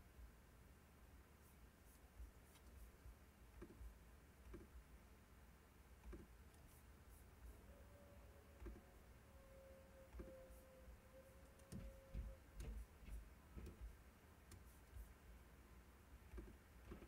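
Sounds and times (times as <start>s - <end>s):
soft ticks and taps: 3.6s - 4.8s, 11.6s - 15.1s.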